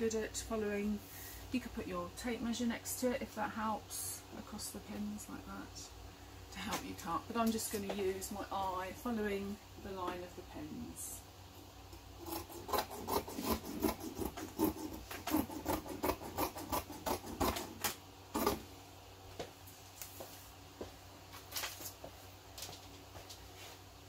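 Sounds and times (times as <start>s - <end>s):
shears snipping fabric: 12.2s - 18.6s.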